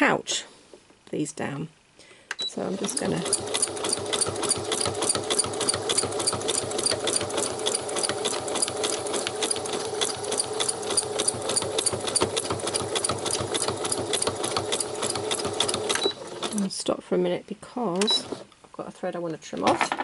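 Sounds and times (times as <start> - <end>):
sewing machine needle clicking: 2.3 - 16.6
sewing machine motor hum: 2.6 - 16.6.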